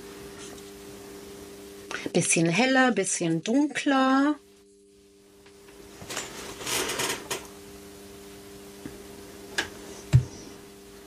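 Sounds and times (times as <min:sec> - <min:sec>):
steady low hum: 0:00.0 - 0:11.0
dull knock: 0:10.1 - 0:10.4.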